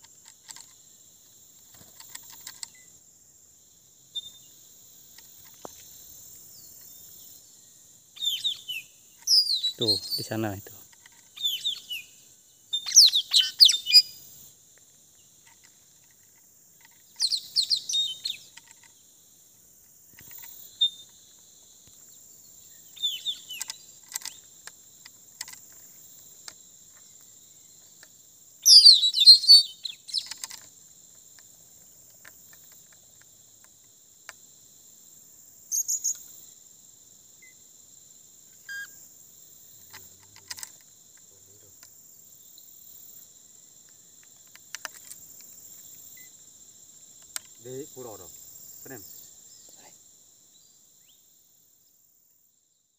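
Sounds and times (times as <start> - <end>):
high insect drone: 0.0 - 52.9
parrots chirping shrilly: 12.8 - 14.1.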